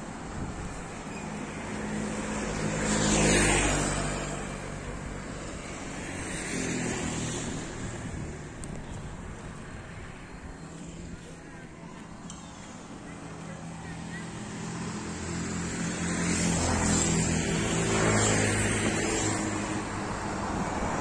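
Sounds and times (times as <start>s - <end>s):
vehicle passing by: 1.6s - 8.4s.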